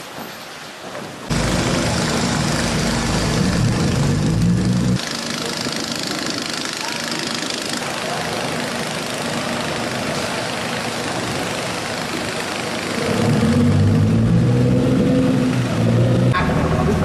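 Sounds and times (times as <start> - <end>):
steady wash of noise: 1.2 - 17.0
boat diesel engine running: 1.3 - 14.4.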